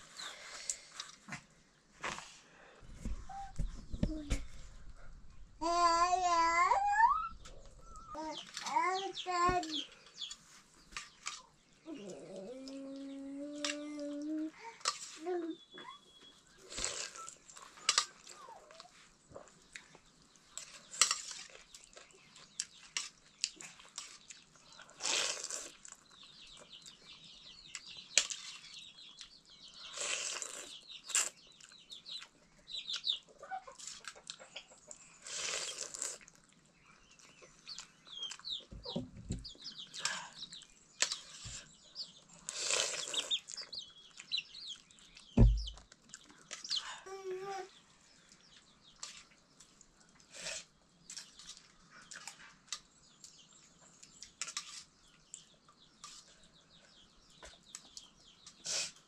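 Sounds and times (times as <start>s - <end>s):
birds clucking and chirping: 3.0s - 14.6s, 30.6s - 35.2s, 36.6s - 47.1s
dull thumps: 45.4s - 45.8s.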